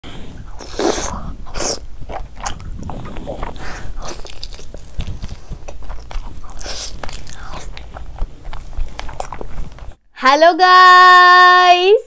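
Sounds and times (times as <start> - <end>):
person biting and chewing: 0.4 - 10.0.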